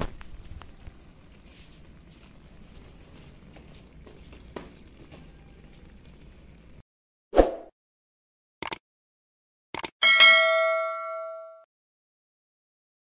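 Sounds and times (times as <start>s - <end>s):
faint hiss with crackles: 0.0s - 6.8s.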